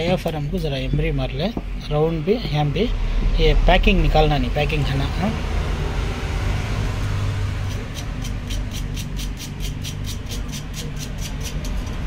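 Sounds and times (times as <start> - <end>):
low steady hum: 0.0 - 8.8
emery paper rubbing on metal: 8.5 - 12.0.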